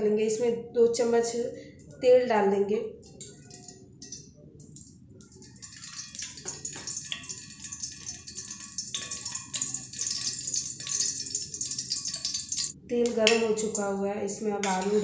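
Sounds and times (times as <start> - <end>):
oil crackling and sizzling: 3.0 - 14.0.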